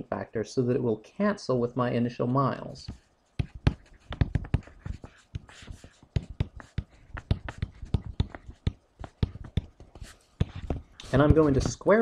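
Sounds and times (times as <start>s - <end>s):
stylus tapping on tablet screen: 2.9s - 11.8s.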